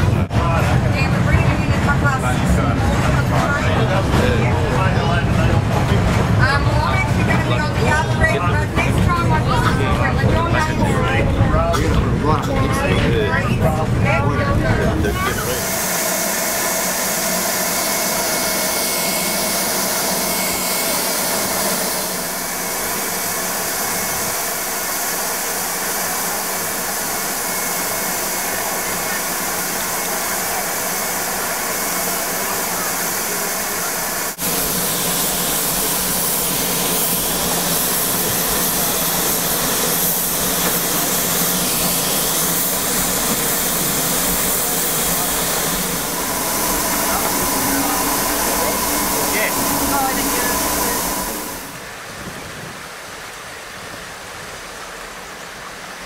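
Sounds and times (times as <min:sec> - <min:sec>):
steam locomotive venting steam: 0:14.6 - 0:52.4.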